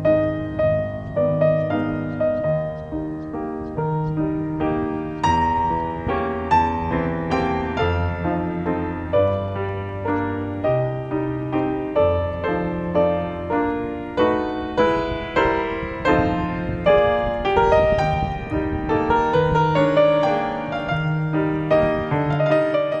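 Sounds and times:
gentle piano music: 0.0s - 23.0s.

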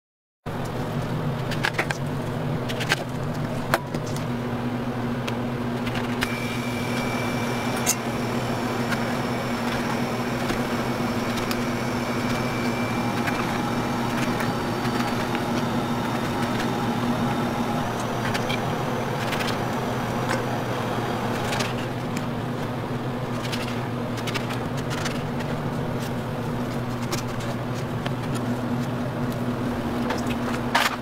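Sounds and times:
motor humming: 5.8s - 22.4s.

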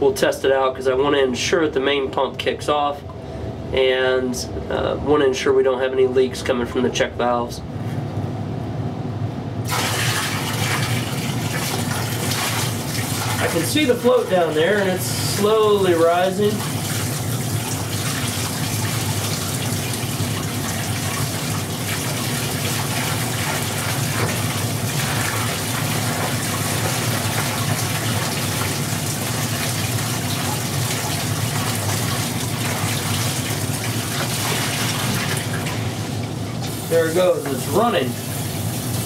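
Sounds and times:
water pouring from a bucket: 9.7s - 39.0s.

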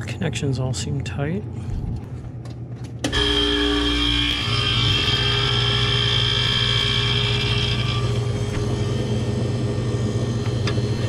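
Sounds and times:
compressor humming: 0.0s - 11.0s
high whine: 3.1s - 11.0s.

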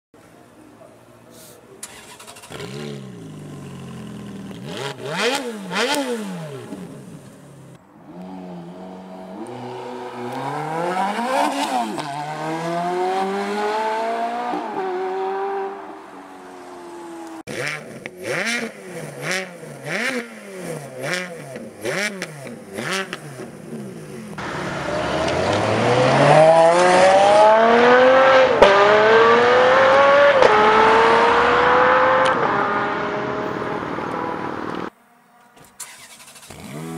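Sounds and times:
car engine revving: 1.8s - 15.9s, 17.2s - 34.9s, 35.8s - 36.9s
car accelerating through gears: 24.4s - 34.9s.

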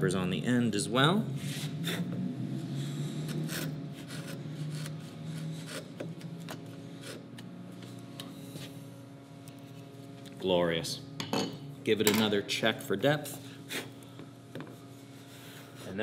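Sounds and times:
chisel scraping wood: 3.1s - 7.2s.

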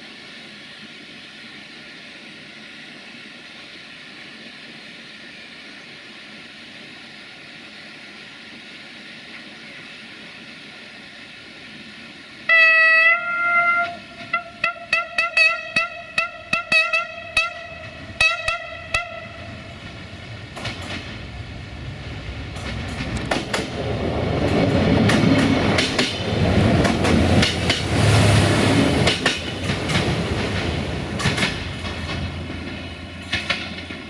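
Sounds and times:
train horn blasts and toots: 12.5s - 19.7s.

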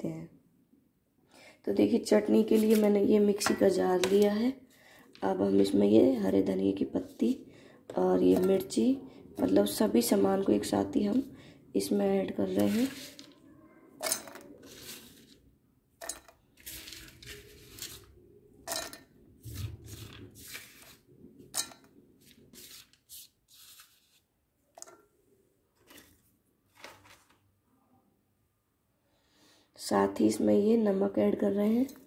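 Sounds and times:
nuts clattering into steel jar: 14.0s - 15.0s, 16.0s - 17.5s, 18.7s - 19.1s.

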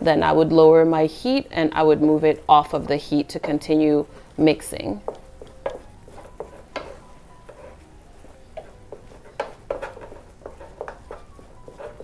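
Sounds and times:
wooden spoon scraping saucepan: 5.0s - 12.0s.

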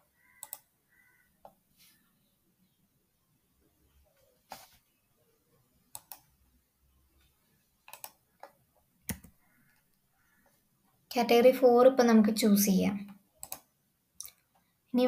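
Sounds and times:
mouse and keyboard clicks: 0.4s - 0.6s, 5.9s - 6.3s, 7.8s - 9.8s, 13.0s - 14.5s.

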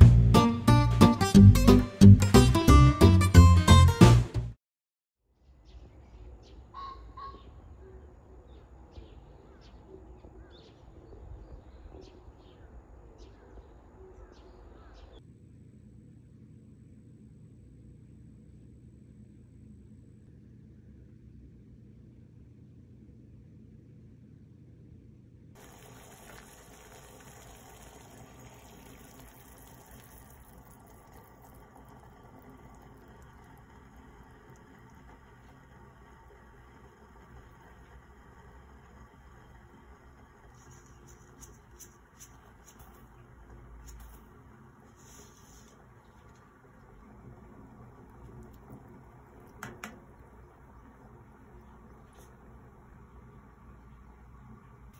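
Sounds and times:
acoustic guitar music: 0.0s - 4.6s
low outdoor rumble: 6.0s - 54.9s
low hum: 15.3s - 54.9s
water bubbling at a boil: 25.6s - 54.9s.

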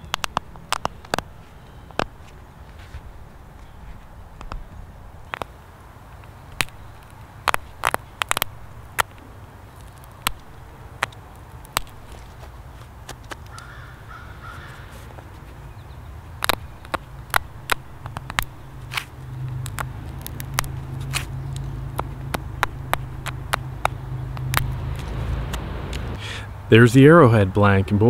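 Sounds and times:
flint flakes clicking: 0.0s - 2.4s, 3.6s - 12.3s, 16.3s - 26.0s.

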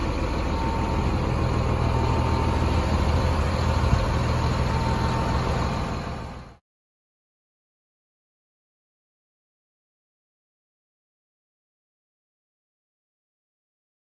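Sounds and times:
diesel engine idling: 0.0s - 6.6s.

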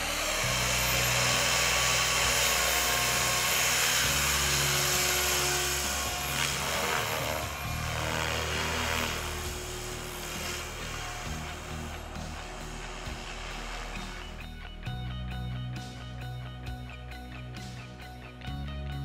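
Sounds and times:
model helicopter rotor whine: 0.0s - 15.0s.

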